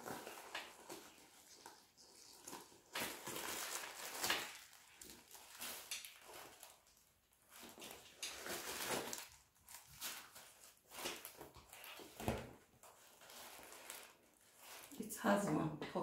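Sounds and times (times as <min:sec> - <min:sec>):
handbag rustling and handling: 0:00.0 - 0:15.1.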